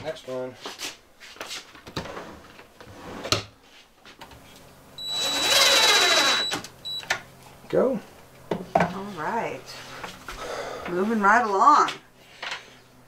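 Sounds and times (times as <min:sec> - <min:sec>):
cordless drill whining: 0:05.0 - 0:07.0.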